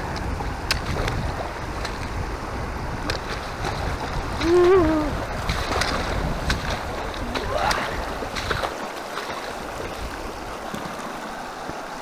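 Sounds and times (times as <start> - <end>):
boots wading through water: 0.0 - 12.0
rushing creek water: 0.0 - 12.0
sharp splashes or knocks: 3.0 - 9.6.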